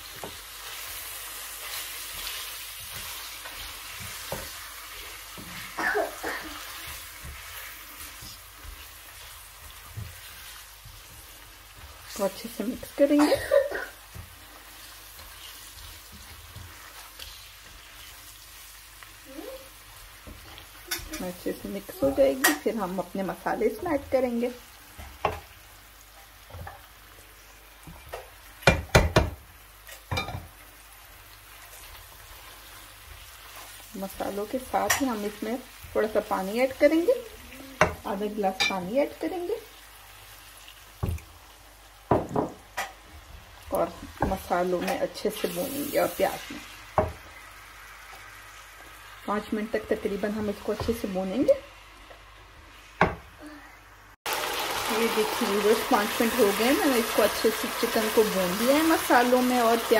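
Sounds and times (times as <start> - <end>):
chicken and onions sizzling in oil: 0.0 - 59.9
utensils knocking on frying pan: 27.9 - 29.5, 42.1 - 43.0.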